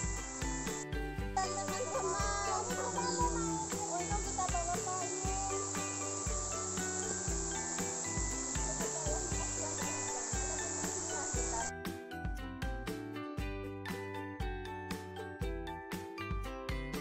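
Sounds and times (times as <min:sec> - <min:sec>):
insect chorus: 0:00.0 - 0:00.8, 0:01.4 - 0:11.7
music with regular beat: 0:00.0 - 0:13.7.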